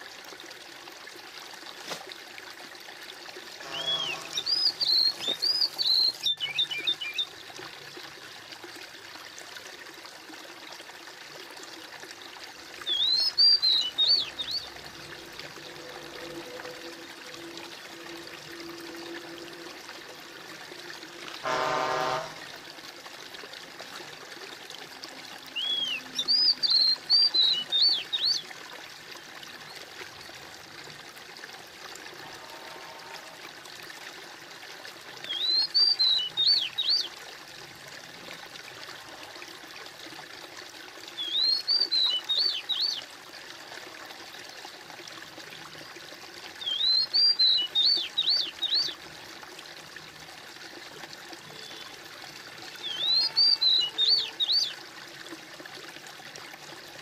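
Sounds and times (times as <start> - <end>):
running water trickling: 0.0 - 57.0
bird singing: 3.6 - 7.3, 12.8 - 14.7, 25.5 - 28.4, 35.3 - 37.1, 41.2 - 43.0, 46.6 - 49.0, 52.8 - 54.8.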